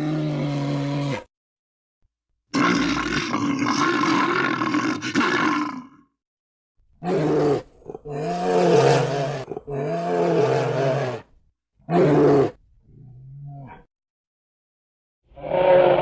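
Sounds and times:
bears roaring: 7.0 - 11.3, 15.4 - 16.0.

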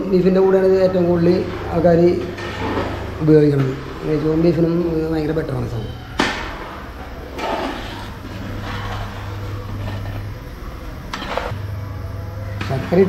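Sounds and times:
steady low hum: 0.0 - 13.0
ladle scraping pot: 7.3 - 10.3.

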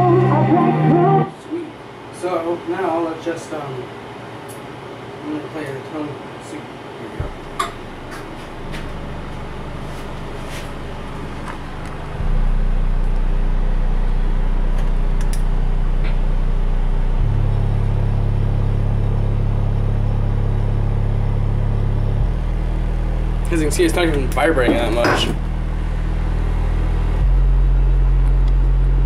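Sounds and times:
low bass test tones: 7.2 - 29.0.

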